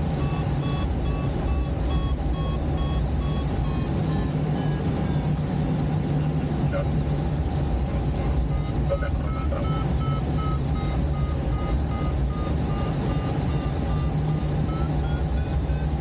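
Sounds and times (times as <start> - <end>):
variometer beeping in short tones: 0.2 - 5.3, 8.4 - 16.0.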